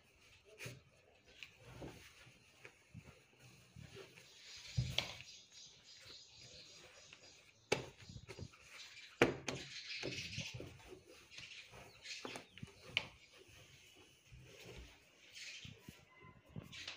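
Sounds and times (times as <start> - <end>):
cloth rustling: 0.0 - 4.4.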